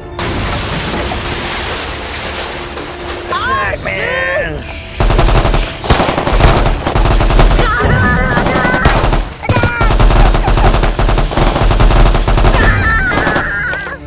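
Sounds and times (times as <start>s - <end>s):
rapid machine-gun fire: 5.0s - 13.5s.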